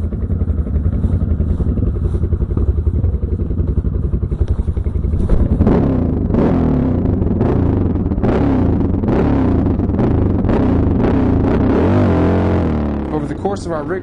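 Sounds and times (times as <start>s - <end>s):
motorcycle engine thumping: 0.0s - 14.0s
wind noise on microphone: 3.4s - 6.4s.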